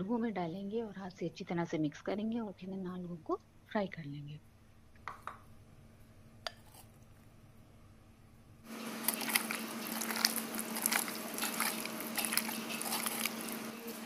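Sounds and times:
hand squishing wet batter: 9.0s - 13.7s.

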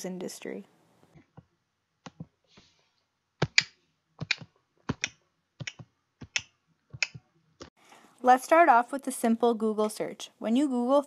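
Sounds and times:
keyboard keys clicking: 3.4s - 7.2s.

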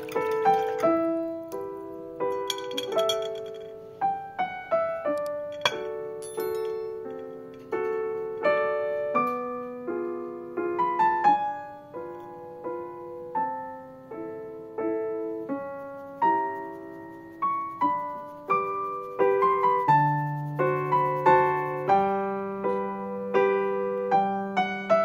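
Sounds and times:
piano music: 0.0s - 25.0s.

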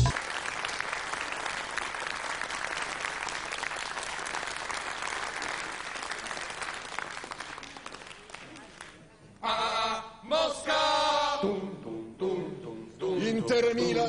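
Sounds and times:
audience clapping: 0.0s - 9.0s.

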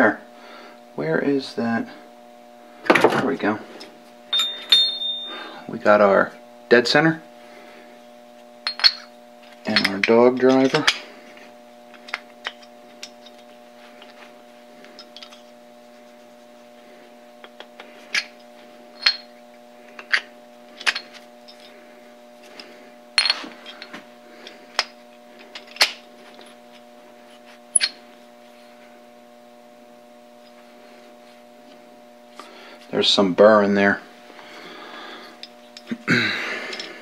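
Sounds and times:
steady low hum: 0.0s - 37.0s
steel parts clinking: 4.3s - 5.5s, 8.6s - 11.0s, 18.9s - 19.4s, 27.7s - 28.0s, 36.7s - 37.0s.

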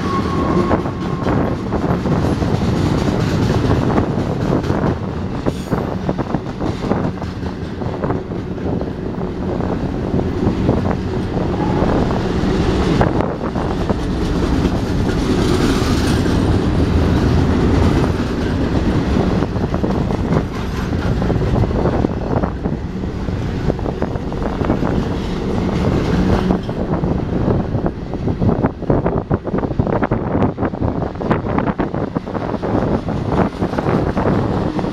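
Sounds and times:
train wheels clicking: 0.0s - 28.8s, 31.8s - 34.9s
freight train wheels rumbling: 0.0s - 34.9s.

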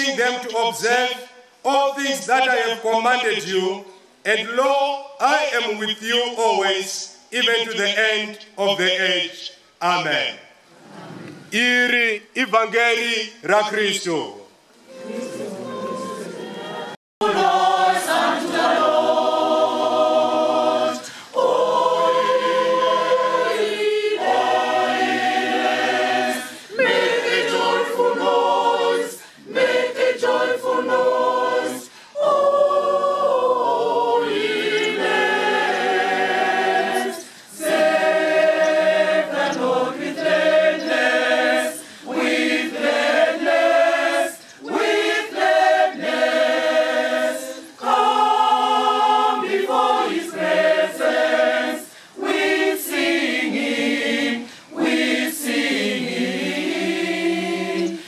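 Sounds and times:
choir singing in harmony: 14.8s - 58.0s.

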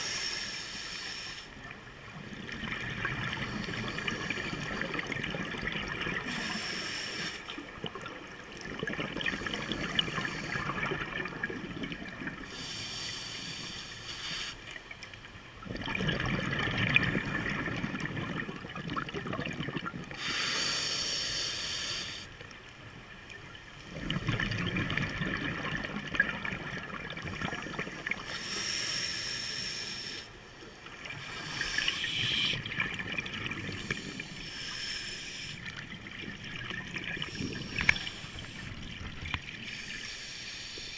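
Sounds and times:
scuba regulator inhale hiss: 0.0s - 1.6s, 6.2s - 7.7s, 9.3s - 11.0s, 12.4s - 14.8s, 20.1s - 22.4s, 28.2s - 32.7s, 33.7s - 35.8s, 37.2s - 38.9s, 39.6s - 40.9s
exhaled air bubbling underwater: 0.0s - 40.9s.

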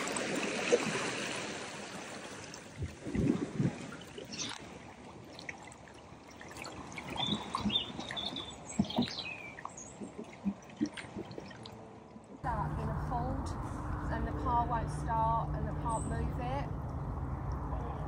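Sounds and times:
small splashes: 0.0s - 12.4s
small birds chirping: 7.1s - 10.5s.

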